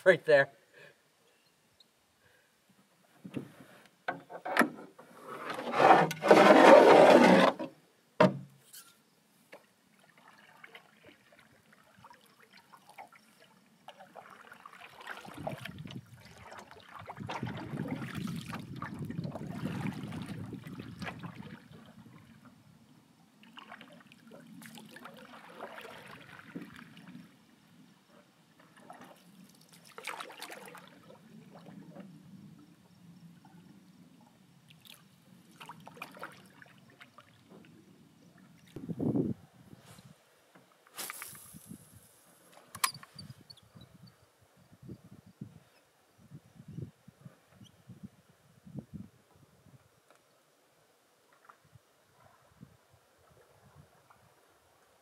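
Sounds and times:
scraping against wooden hull: 0:03.2 - 0:09.0
knocks on canoe: 0:08.2 - 0:08.5
paddle strokes swishing and dripping: 0:09.5 - 0:22.5, 0:23.4 - 0:27.4, 0:28.6 - 0:32.2, 0:34.6 - 0:38.8.

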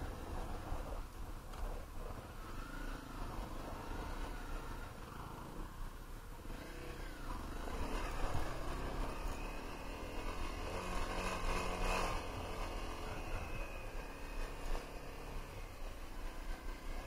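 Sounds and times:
motorcycle engine revving: 0:00.0 - 0:17.0.

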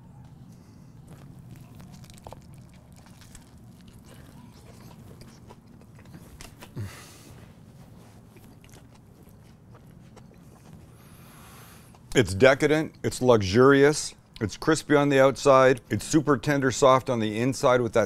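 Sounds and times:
man chewing crunchy sandwich: 0:00.2 - 0:12.1.

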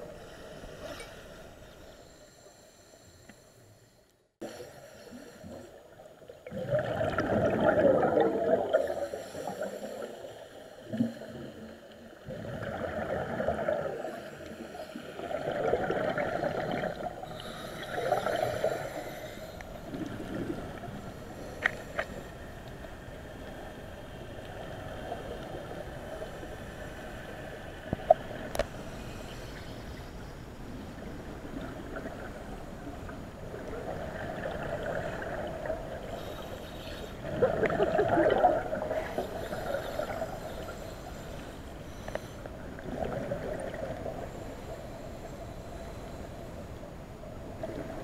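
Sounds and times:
underwater bubbles gurgling: 0:04.4 - 0:28.8, 0:30.7 - 0:44.8
steady hiss: 0:16.4 - 0:20.0, 0:20.6 - 0:31.4, 0:36.0 - 0:37.2, 0:38.7 - 0:42.8, 0:44.0 - 0:47.6.

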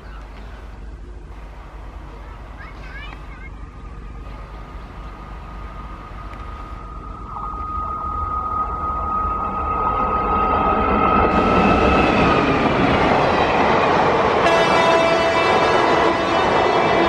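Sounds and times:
train coaches clattering on rails: 0:00.0 - 0:07.0, 0:11.1 - 0:17.0
train horn long note: 0:14.4 - 0:17.0.

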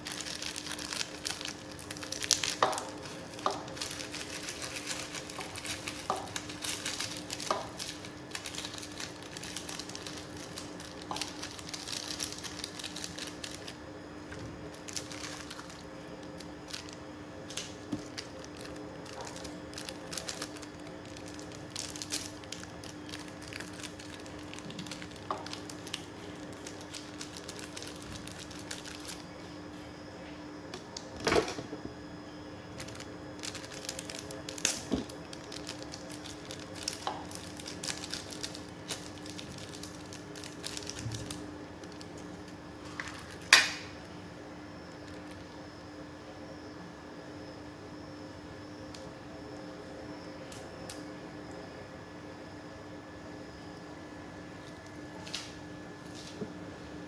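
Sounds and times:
plastic sachets crinkling: 0:00.0 - 0:13.8, 0:14.6 - 0:29.3, 0:32.8 - 0:44.0, 0:44.9 - 0:45.6
faint steady hum: 0:00.0 - 0:57.0.

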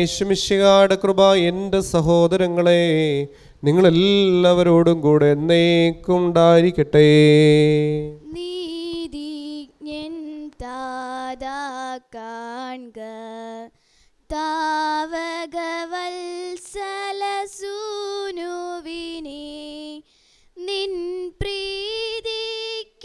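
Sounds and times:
woman singing a hymn: 0:08.0 - 0:23.0.

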